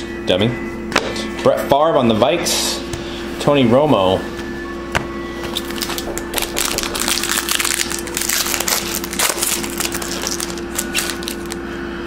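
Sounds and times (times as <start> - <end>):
foil wrapper crinkling and tearing: 5.5 - 11.6.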